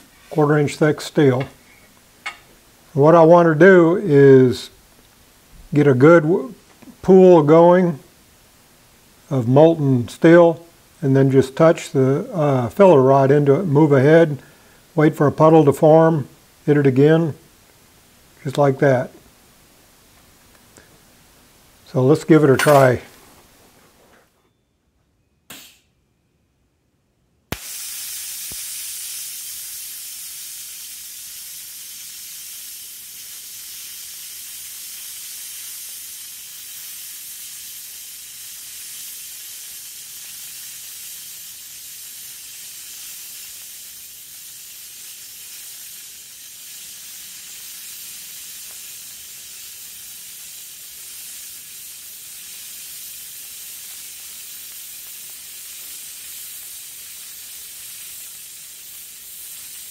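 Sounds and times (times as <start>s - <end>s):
welding arc hissing and sizzling: 0.0s - 23.6s, 27.5s - 59.9s
welding arc striking crack: 22.1s - 23.1s, 25.5s - 25.9s, 27.5s - 59.9s.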